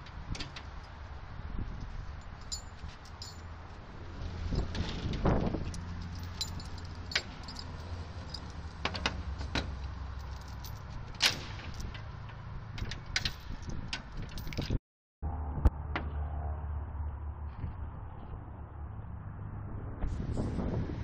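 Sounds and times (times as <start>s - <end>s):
metal chain clinking and rattling: 2.2s - 3.6s, 5.6s - 12.1s, 12.8s - 14.8s.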